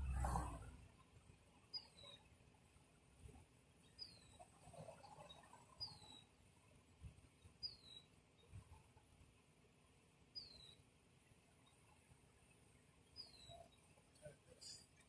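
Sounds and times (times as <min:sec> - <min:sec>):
bird chirping: 0:01.7 - 0:02.2, 0:03.8 - 0:04.4, 0:05.3 - 0:06.3, 0:07.6 - 0:08.1, 0:10.4 - 0:10.8, 0:13.0 - 0:13.9.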